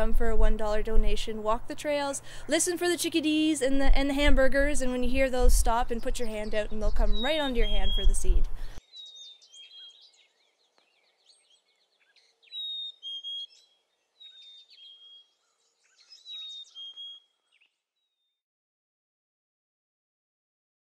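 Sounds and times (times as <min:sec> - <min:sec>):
chickadees whistling and chipping: 0:06.0 - 0:10.4, 0:11.0 - 0:17.7.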